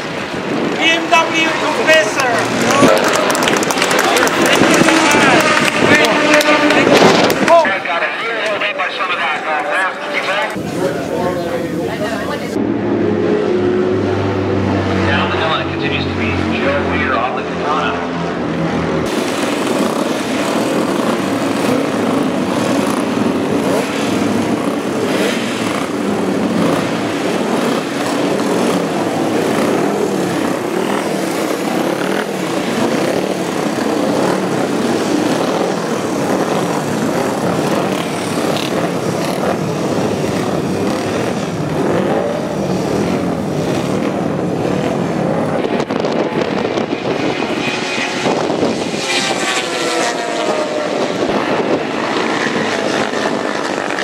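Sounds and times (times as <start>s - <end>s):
motorcycle engines revving: 0.0s - 54.0s
wind noise on microphone: 2.5s - 7.8s, 18.6s - 54.0s.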